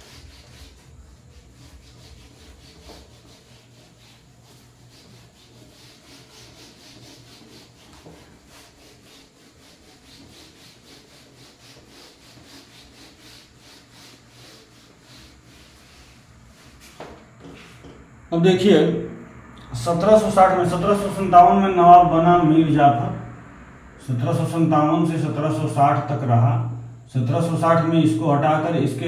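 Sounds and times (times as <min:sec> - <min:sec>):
cloth wiping whiteboard: 0:00.0 - 0:18.0, 0:19.7 - 0:21.6.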